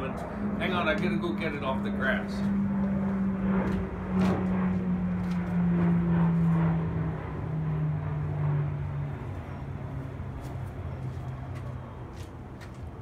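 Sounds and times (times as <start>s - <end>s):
propeller plane droning overhead: 0.0s - 13.0s.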